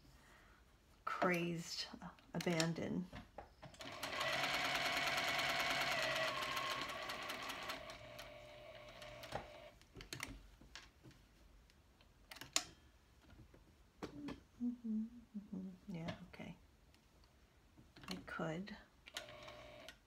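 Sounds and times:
sewing machine running: 3.8s - 9.7s, 19.2s - 19.9s.

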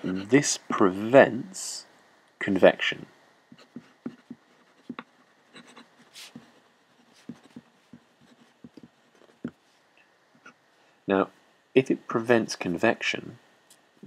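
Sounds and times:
pen nib scratching on paper: 3.5s - 9.6s.

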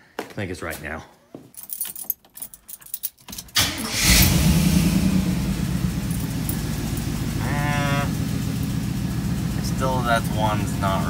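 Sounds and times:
car engine cranking and idling: 3.3s - 11.0s.

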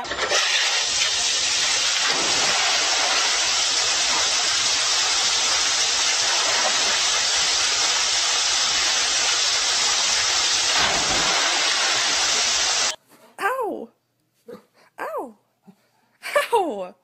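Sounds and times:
water rushing down rock slide: 0.0s - 13.0s
water splashing into pool: 0.0s - 13.0s.

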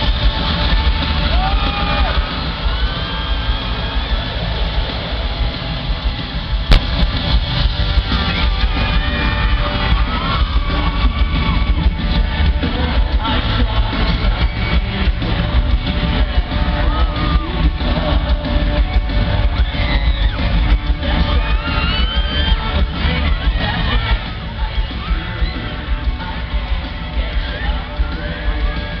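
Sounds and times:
live rock band playing: 0.0s - 29.0s
person singing: 9.0s - 29.0s.

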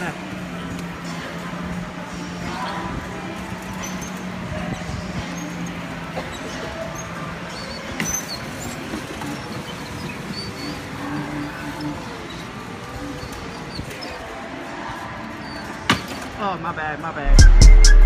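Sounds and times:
go-kart motor hum: 0.0s - 16.4s
short high squeaks: 3.6s - 16.3s.

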